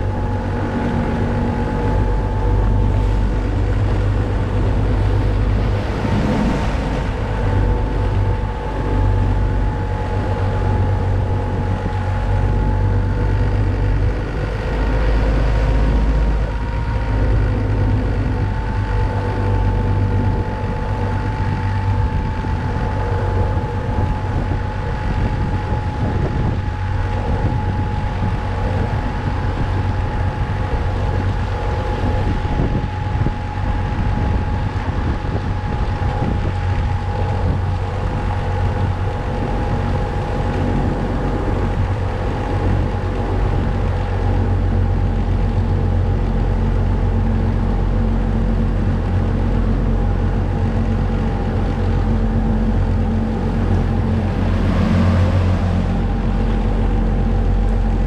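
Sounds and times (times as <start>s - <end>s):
motorboat engine running: 0.0s - 58.0s
water and wind rushing: 0.0s - 58.0s.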